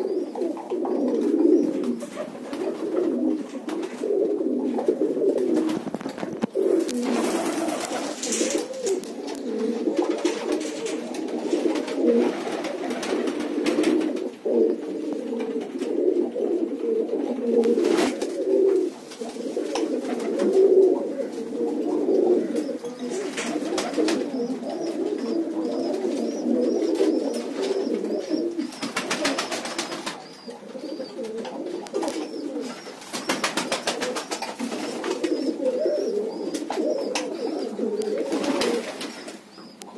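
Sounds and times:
pigeons cooing: 0:00.0 - 0:39.9
faint high peeping: 0:22.4 - 0:39.9.

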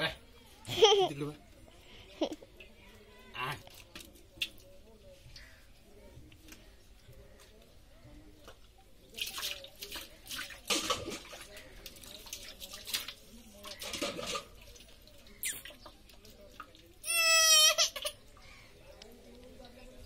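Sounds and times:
water poured and splashing: 0:09.0 - 0:17.0
baby squealing: 0:17.0 - 0:18.2.

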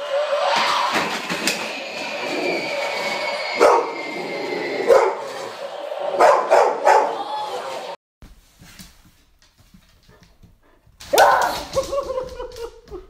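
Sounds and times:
steady high electronic tone: 0:00.0 - 0:06.3
dog barking: 0:04.9 - 0:05.2, 0:06.2 - 0:07.2.

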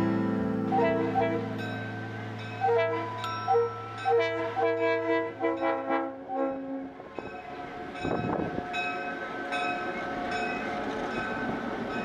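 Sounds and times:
train rumbling past: 0:00.0 - 0:12.0
bell ringing: 0:01.6 - 0:05.9.

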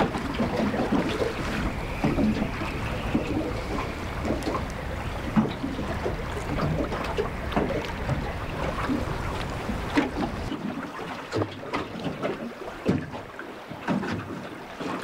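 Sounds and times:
wind buffeting microphone: 0:00.0 - 0:10.6
water slapping against boat hull: 0:00.0 - 0:15.0.

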